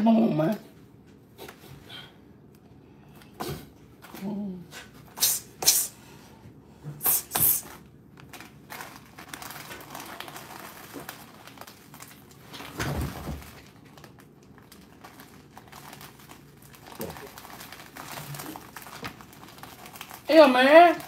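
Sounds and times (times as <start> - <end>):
short sharp noises: 5.2 - 6.0, 7.0 - 7.8
plastic bag crinkling: 7.8 - 21.0.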